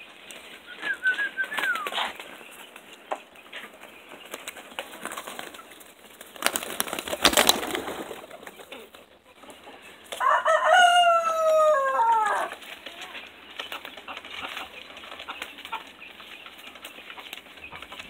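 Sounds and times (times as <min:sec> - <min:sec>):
pigeon wings flapping: 0:00.4 - 0:02.9, 0:04.2 - 0:09.1
rooster crowing: 0:10.2 - 0:12.5.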